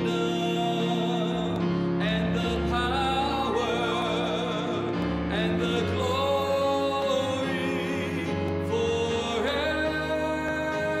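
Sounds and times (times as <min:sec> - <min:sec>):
operatic singer with vibrato: 0:00.0 - 0:11.0.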